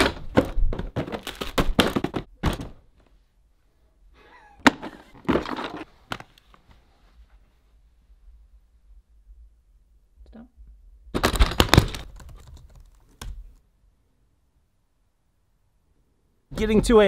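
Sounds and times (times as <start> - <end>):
objects dropped into plastic case: 0.0 - 2.9, 4.6 - 6.3.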